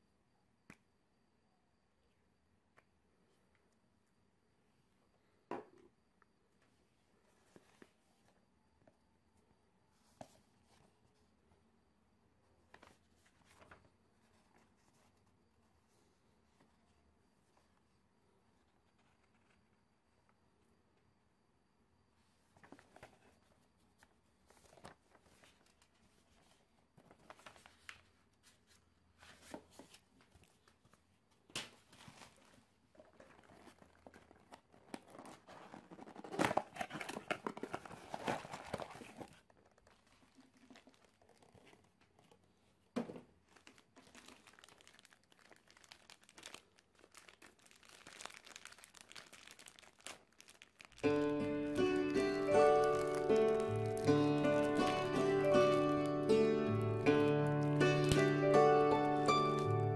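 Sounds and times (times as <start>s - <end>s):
cardboard box opening: 33.1s - 42.0s
plastic bags crinkling: 33.2s - 42.4s, 43.3s - 58.4s.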